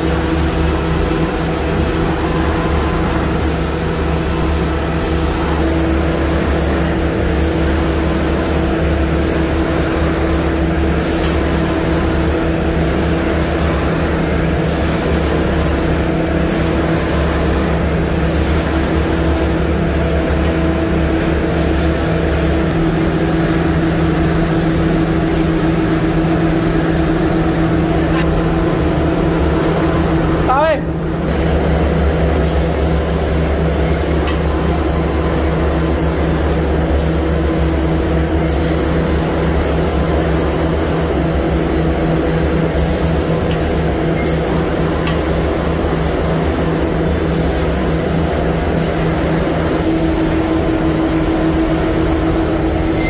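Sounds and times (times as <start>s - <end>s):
spray gun hissing: 0.0s - 19.7s, 32.4s - 41.2s, 42.8s - 52.7s
machine hum: 0.0s - 53.0s.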